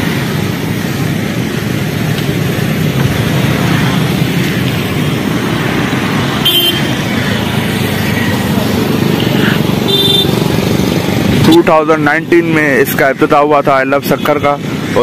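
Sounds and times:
motorcycles and cars passing: 0:00.0 - 0:15.0.

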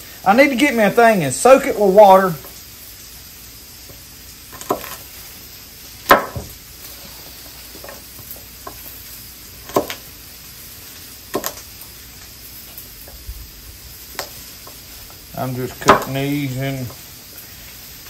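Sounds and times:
steak sizzling on griddle: 0:00.0 - 0:18.0
knife chopping on wooden board: 0:04.6 - 0:05.0, 0:06.1 - 0:06.5, 0:09.6 - 0:10.0, 0:11.3 - 0:11.6, 0:15.8 - 0:16.1.

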